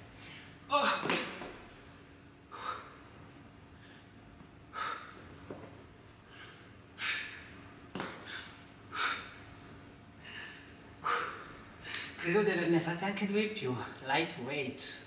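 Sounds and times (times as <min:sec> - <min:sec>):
faint steady hum: 0:00.0 - 0:15.0
woman breathing hard: 0:02.5 - 0:03.1, 0:03.7 - 0:05.3, 0:06.2 - 0:07.5, 0:08.2 - 0:12.2.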